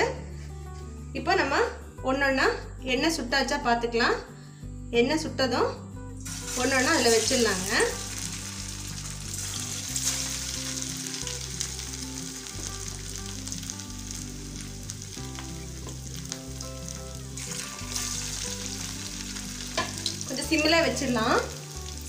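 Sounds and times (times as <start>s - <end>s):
oil sizzling around frying patties: 6.2s - 22.0s.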